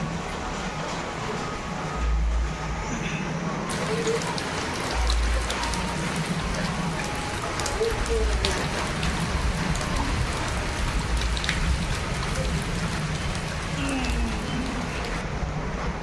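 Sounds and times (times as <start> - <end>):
rain on paved street: 0.0 - 16.0
raindrop hits: 3.7 - 15.3.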